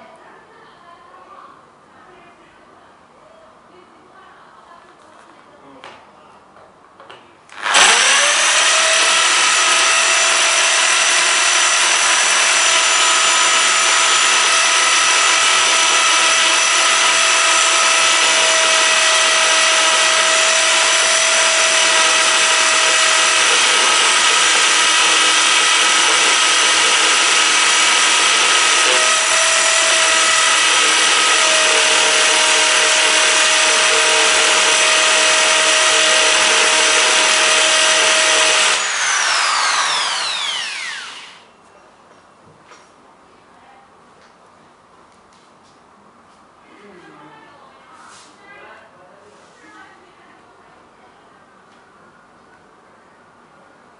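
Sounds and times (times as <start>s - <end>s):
power drill grinding glass: 7.6s - 41.5s.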